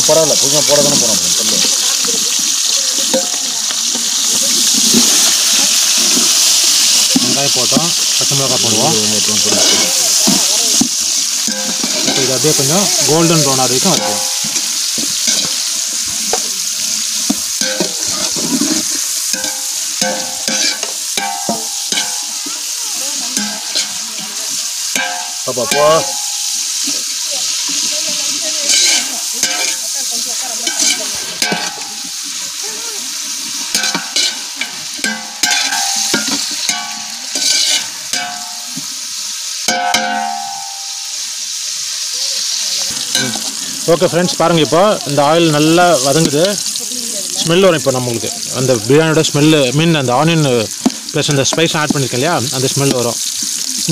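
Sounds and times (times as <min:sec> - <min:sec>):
onions sizzling in hot oil: 0:00.0 - 0:53.9
metal ladle scraping a pot: 0:09.4 - 0:13.1, 0:17.6 - 0:22.2, 0:33.7 - 0:38.4.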